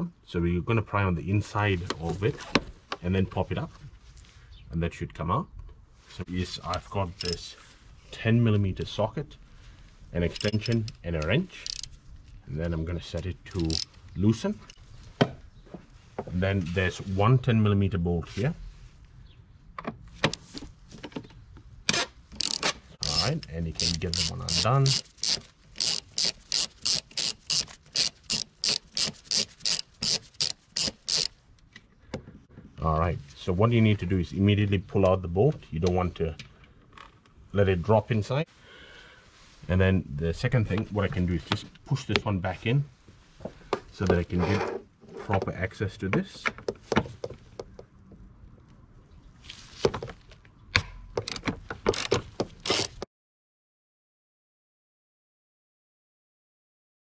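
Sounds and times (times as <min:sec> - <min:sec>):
ratchet wrench clicking: 0:06.7 - 0:07.4, 0:10.3 - 0:12.0, 0:13.2 - 0:14.0, 0:22.4 - 0:31.4, 0:51.2 - 0:53.0.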